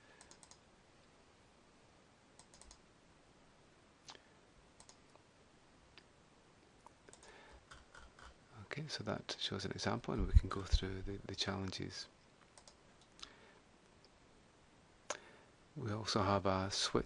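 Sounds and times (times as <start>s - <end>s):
faint room hiss: 0.0s - 17.0s
computer mouse clicks: 0.2s - 0.6s, 2.4s - 2.8s, 4.8s - 5.2s, 6.8s - 8.4s, 12.5s - 13.3s.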